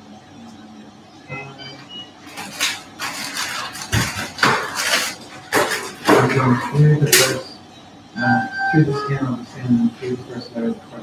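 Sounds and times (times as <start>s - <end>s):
metallic clattering and clanking: 2.3s - 7.4s.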